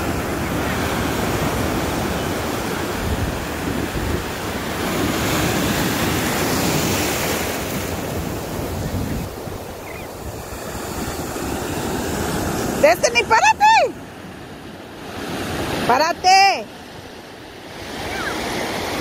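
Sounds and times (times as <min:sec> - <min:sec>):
ocean surf breaking: 0:00.0 - 0:19.0
wind buffeting microphone: 0:02.8 - 0:07.0, 0:07.7 - 0:13.9.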